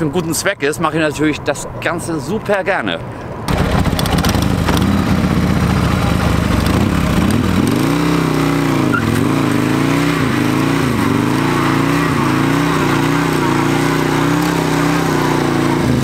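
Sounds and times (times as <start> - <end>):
motorcycle engine revving: 3.5 - 16.0.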